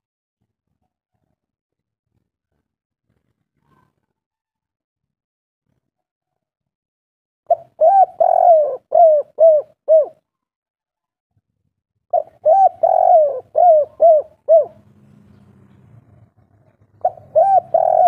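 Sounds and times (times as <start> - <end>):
dove cooing: 7.5 - 10.2, 12.1 - 15.4, 16.4 - 18.0.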